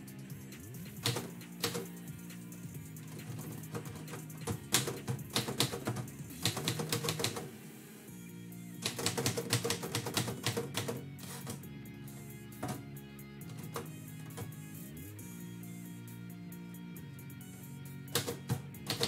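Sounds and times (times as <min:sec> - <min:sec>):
manual typewriter keystrokes: 0:00.9 - 0:01.8, 0:03.2 - 0:07.5, 0:08.8 - 0:11.6, 0:18.1 - 0:19.0.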